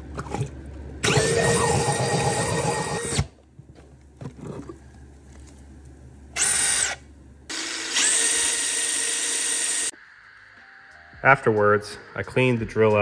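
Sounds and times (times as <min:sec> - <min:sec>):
cordless drill running: 0:01.0 - 0:03.3, 0:06.4 - 0:09.9.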